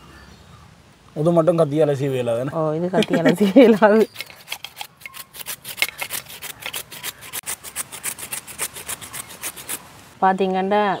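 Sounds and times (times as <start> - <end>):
beetroot grated on metal grater: 3.8 - 9.8.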